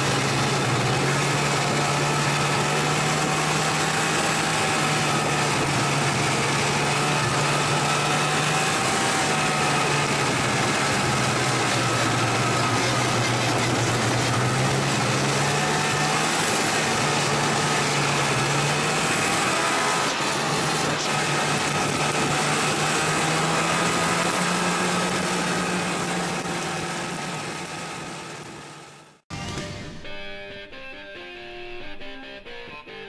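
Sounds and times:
track and wind noise: 0.0s - 29.0s
snowmobile engine running: 0.0s - 30.3s
guitar music: 29.3s - 33.0s.

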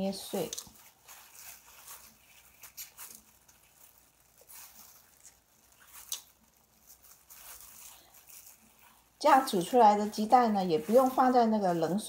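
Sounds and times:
paper towel crinkling: 0.0s - 12.0s
egg shell cracking: 0.4s - 9.1s.

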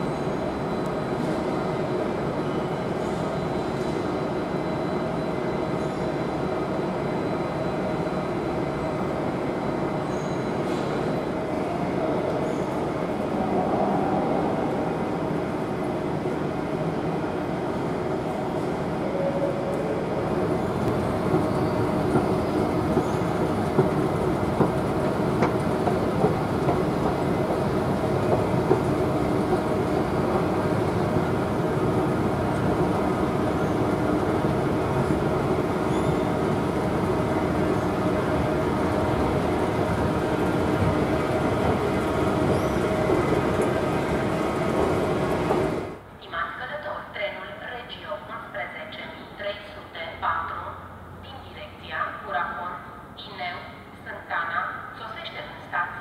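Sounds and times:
escalator steps clacking: 20.8s - 31.1s.

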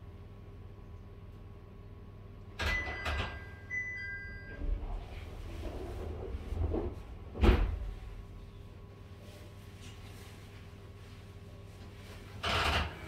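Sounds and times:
low steady hum: 0.0s - 13.0s
door sliding rumble: 4.6s - 8.4s.

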